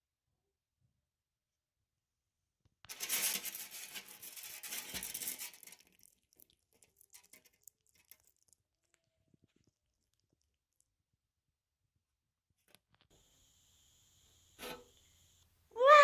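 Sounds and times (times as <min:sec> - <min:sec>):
rustling and scraping at microphone: 0:02.9 - 0:06.0.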